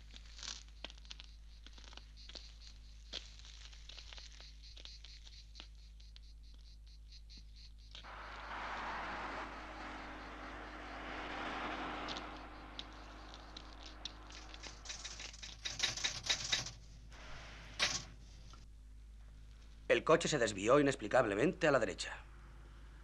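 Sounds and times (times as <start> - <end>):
rushing noise: 8.1 - 16.3
typewriter keys striking: 14.8 - 16.8.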